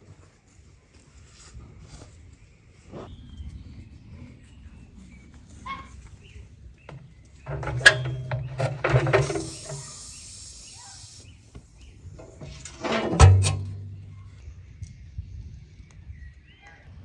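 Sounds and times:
metal baking tray scraping: 7.4s - 9.9s, 12.2s - 14.3s
loud metal clang: 12.2s - 14.4s.

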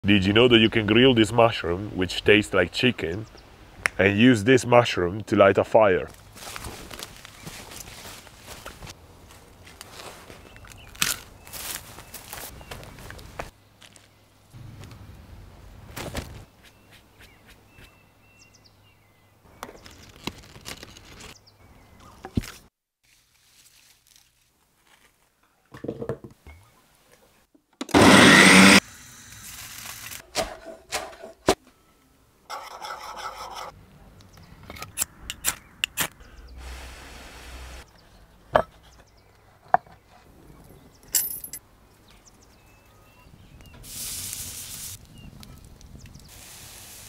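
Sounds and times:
short buzzing rasp: 27.9s - 28.8s
loud burst of rough noise: 27.9s - 29.3s.

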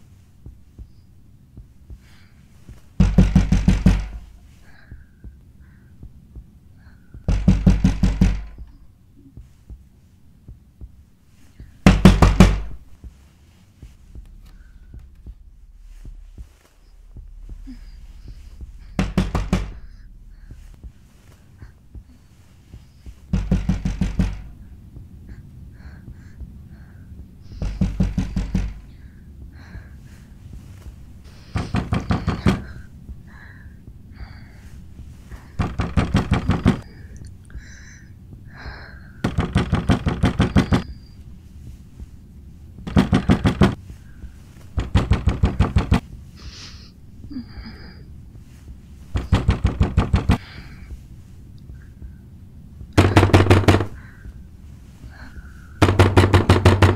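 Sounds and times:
pounding on wooden door: 3.0s - 4.5s, 7.1s - 8.8s, 11.8s - 12.8s, 17.1s - 20.7s, 23.1s - 24.6s, 27.6s - 28.9s, 31.5s - 32.8s, 35.5s - 36.8s, 39.2s - 40.9s, 42.8s - 43.8s, 44.8s - 46.0s, 49.2s - 50.4s, 53.0s - 54.0s, 55.8s - 56.9s.

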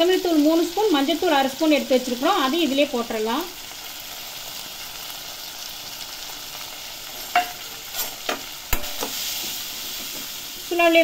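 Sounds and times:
food sizzling in oil: 0.0s - 11.0s.

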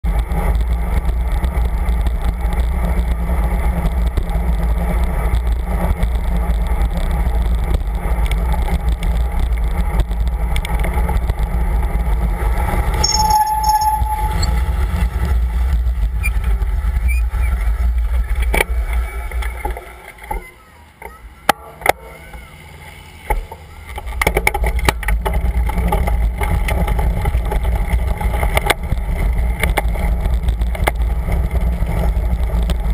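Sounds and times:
road traffic noise: 0.0s - 32.9s
brief high tone: 13.0s - 14.8s.

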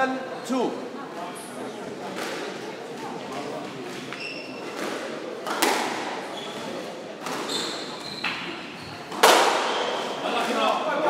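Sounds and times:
shoes squeaking on wooden floor: 2.9s - 5.1s, 6.0s - 10.4s
squash ball cracks: 4.7s - 6.2s, 9.1s - 10.6s.

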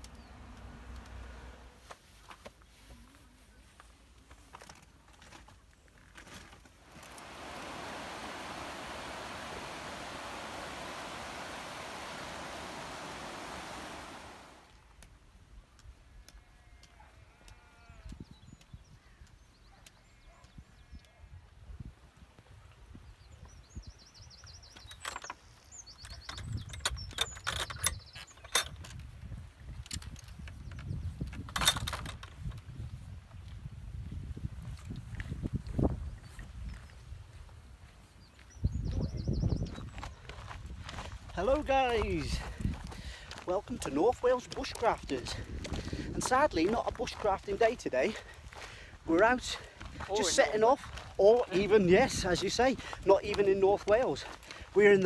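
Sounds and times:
stream flowing over stones: 6.8s - 14.7s.

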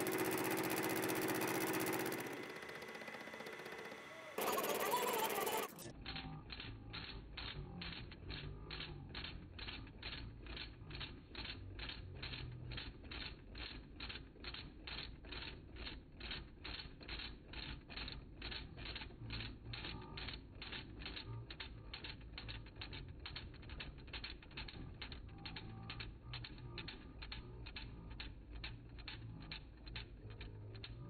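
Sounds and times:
machine humming: 0.0s - 5.9s
cutter clicking into steel: 0.0s - 12.9s.

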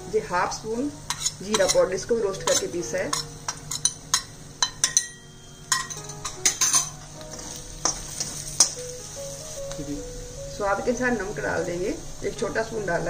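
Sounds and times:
light sizzle: 0.0s - 13.0s
soft background music: 0.0s - 13.0s
steel spatula scraping metal pan: 1.1s - 8.8s.

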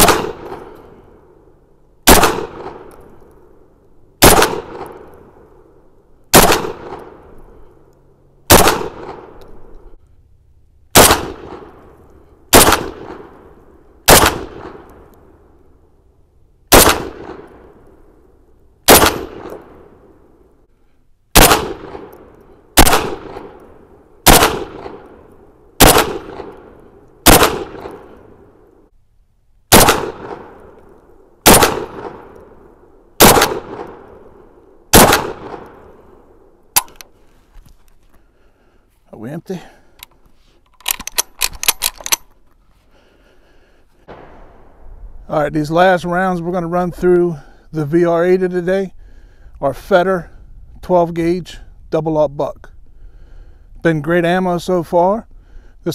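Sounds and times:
shotgun shots with echo: 0.0s - 0.8s, 2.0s - 2.9s, 4.2s - 5.1s, 6.3s - 7.2s, 8.5s - 9.4s, 10.9s - 11.8s, 12.5s - 13.3s, 14.1s - 14.9s, 16.7s - 17.7s, 18.9s - 19.9s, 21.4s - 22.2s, 22.8s - 23.6s, 24.2s - 25.0s, 25.8s - 28.2s, 29.7s - 30.7s, 31.4s - 32.4s, 33.2s - 34.3s, 34.9s - 35.9s, 44.1s - 44.8s.

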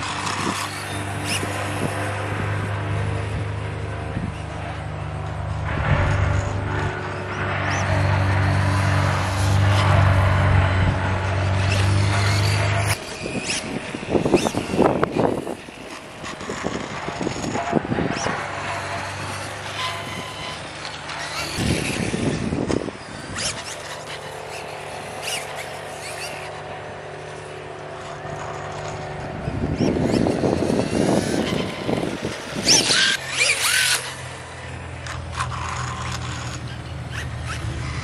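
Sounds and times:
steady low hum: 0.0s - 13.0s
electric motor whine: 0.0s - 38.0s.

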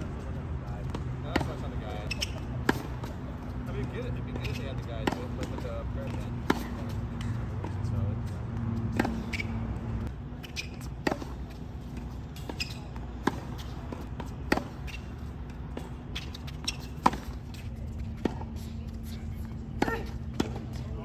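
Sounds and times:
racket striking tennis ball: 0.9s - 3.2s, 4.4s - 7.8s, 8.6s - 18.6s, 19.8s - 20.8s
ball bouncing: 3.8s - 7.8s
steady low hum: 5.0s - 21.0s.

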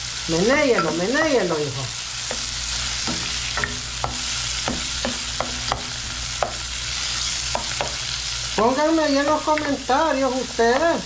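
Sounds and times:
vegetables sizzling in a frying pan: 0.0s - 11.0s
spatula scraping and tapping pan: 0.7s - 8.1s.

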